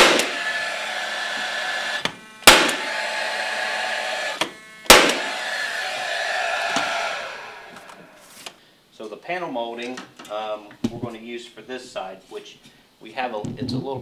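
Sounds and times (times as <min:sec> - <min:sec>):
nailer motor whine: 0:00.0 - 0:08.5
nailer shots: 0:00.0 - 0:08.5.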